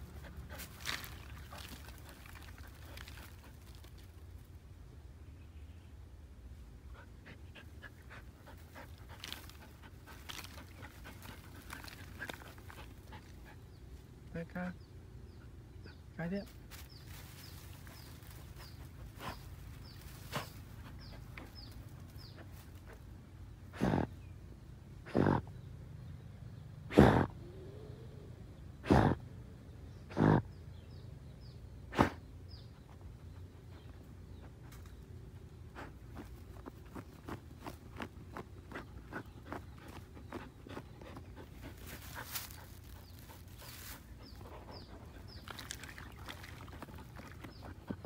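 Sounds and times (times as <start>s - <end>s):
dog panting and sniffing: 0.0s - 4.0s, 6.9s - 13.8s, 16.8s - 23.1s, 32.0s - 48.0s
dog huffing through nose: 23.7s - 24.1s.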